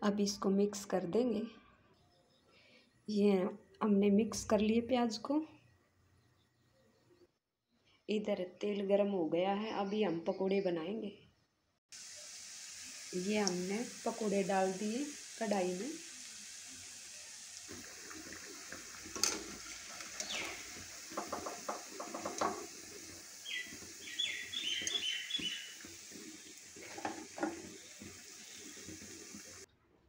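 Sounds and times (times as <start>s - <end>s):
food sizzling in hot oil: 11.9s - 29.7s
high bird chirps: 20.1s - 20.7s, 23.2s - 25.9s.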